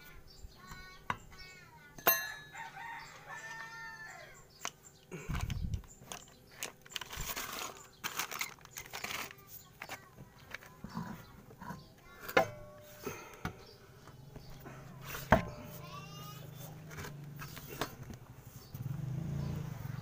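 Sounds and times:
rooster crowing: 2.3 - 4.4.

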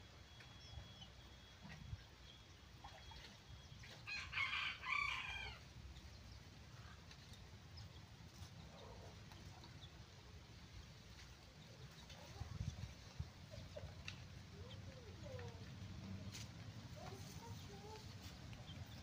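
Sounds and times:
rooster crowing: 4.1 - 5.6.

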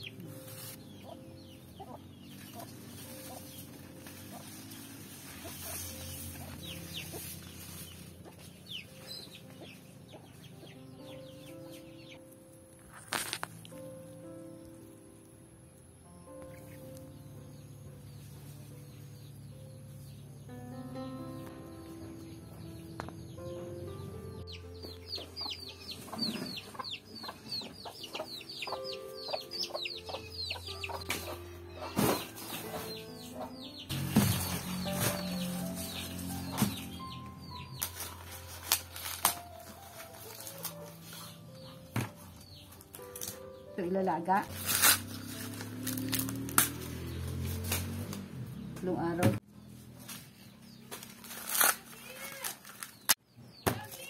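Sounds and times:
chickens clucking: 0.0 - 12.2, 24.5 - 38.3
soft background music: 0.0 - 54.0.

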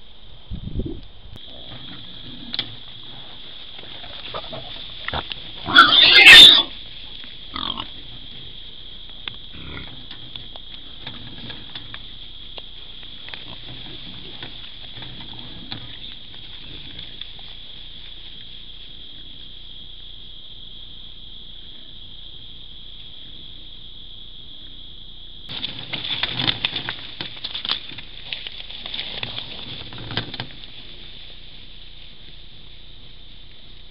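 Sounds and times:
night insects droning: 0.0 - 33.9
pig squealing: 5.6 - 6.8.

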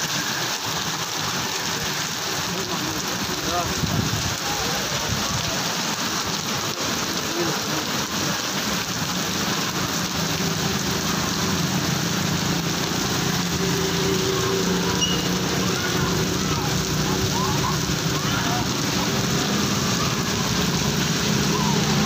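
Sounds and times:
heavy rain on street: 0.0 - 22.0
vehicle engine humming: 8.8 - 22.0.

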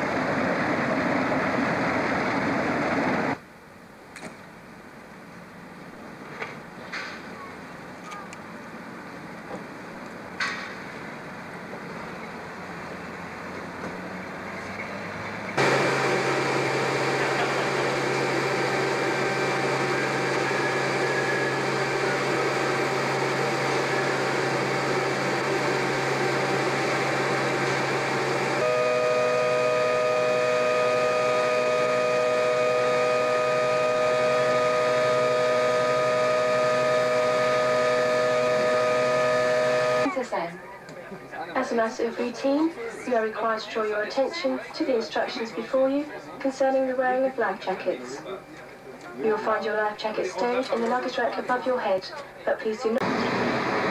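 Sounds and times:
hovercraft engine noise: 0.0 - 40.2, 52.9 - 53.9
two-tone engine whine: 12.0 - 40.2, 53.0 - 53.9.

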